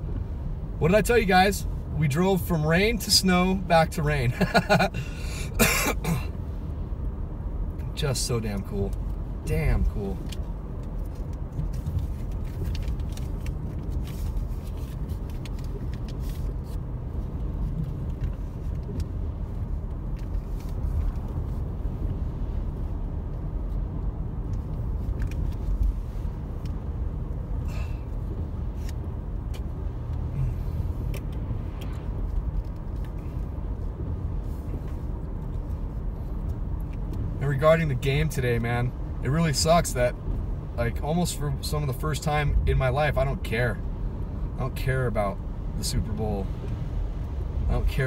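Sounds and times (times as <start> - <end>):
engine and tyre road rumble: 0.0 - 48.0
light clicks and taps: 10.2 - 16.9, 23.3 - 26.0, 31.0 - 33.5, 34.7 - 37.3.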